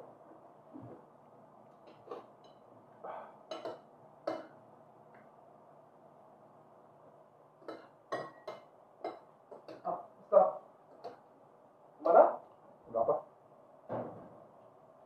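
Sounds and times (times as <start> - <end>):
metal spoon clinking on glass bowl: 7.6 - 9.8.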